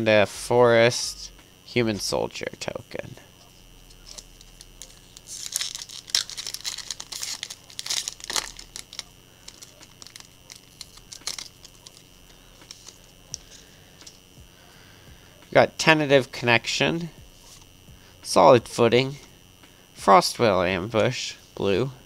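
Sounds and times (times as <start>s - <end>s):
cards rustling and clicking: 3.9s - 14.2s
foil wrapper crinkling and tearing: 3.9s - 14.2s.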